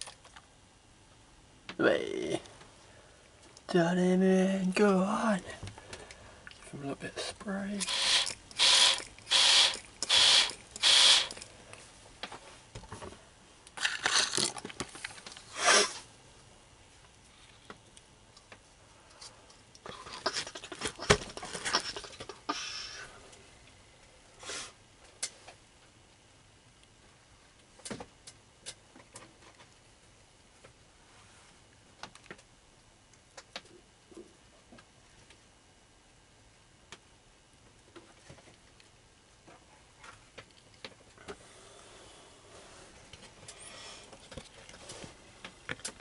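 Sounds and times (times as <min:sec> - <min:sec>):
faint room hiss: 0:00.0 - 0:46.0
short hissing bursts: 0:07.8 - 0:11.4, 0:24.4 - 0:24.8.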